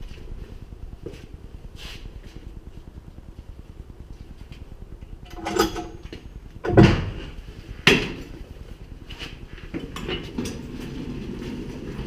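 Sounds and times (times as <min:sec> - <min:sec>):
metal dolly clanking and knocking: 0:05.3 - 0:06.1, 0:09.7 - 0:12.0.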